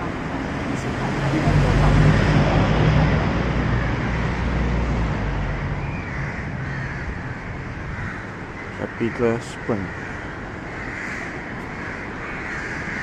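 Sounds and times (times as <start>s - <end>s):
passing vehicle engine hum: 0.0s - 8.2s
birds calling: 0.0s - 13.0s.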